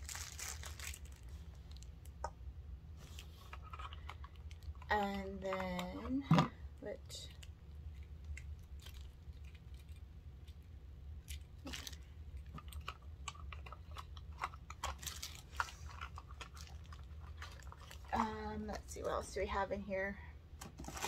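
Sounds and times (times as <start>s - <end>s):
plastic wrapping crinkling: 0.0s - 2.2s, 7.2s - 18.8s, 20.7s - 21.0s
low steady hum: 0.0s - 21.0s.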